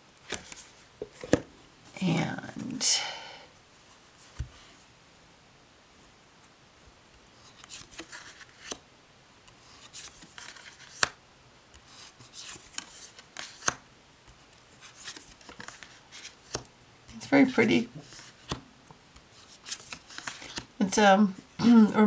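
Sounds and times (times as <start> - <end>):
paper cards rustling: 0.2 - 1.4, 7.4 - 8.8, 9.5 - 11.2, 11.8 - 18.6, 19.2 - 20.7.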